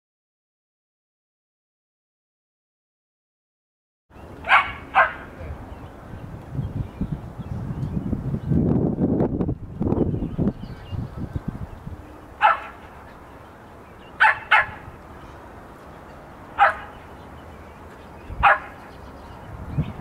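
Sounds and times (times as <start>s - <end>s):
dog barking: 4.4s - 5.3s, 12.4s - 12.8s, 14.2s - 14.8s, 16.6s - 17.0s, 18.4s - 18.8s.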